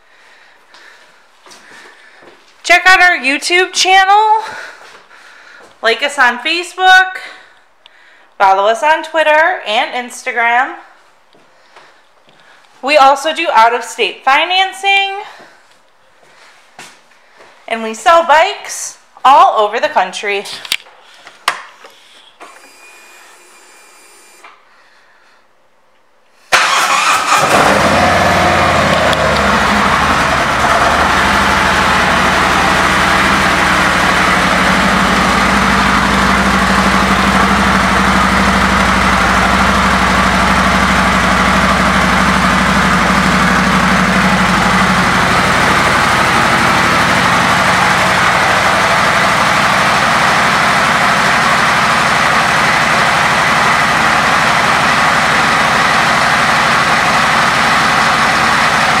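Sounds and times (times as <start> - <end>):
motorcycle engine idling: 29.1 - 59.0.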